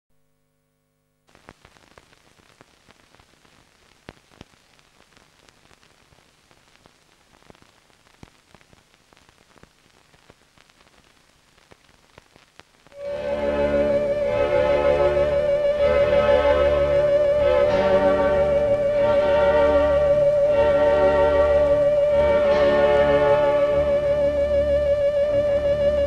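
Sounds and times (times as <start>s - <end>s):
film soundtrack hiss: 0.2s - 26.0s
clicks and crackles: 1.3s - 13.1s.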